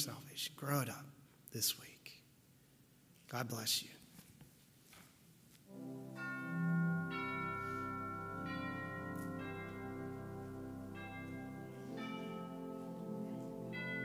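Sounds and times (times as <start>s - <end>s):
slow bell-like instrumental chords: 5.7s - 14.0s.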